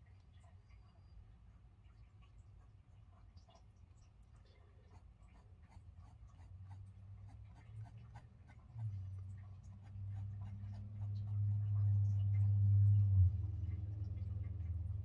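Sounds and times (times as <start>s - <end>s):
low steady hum: 0.0s - 15.0s
pencil scratching on paper: 4.9s - 9.1s, 9.7s - 11.7s.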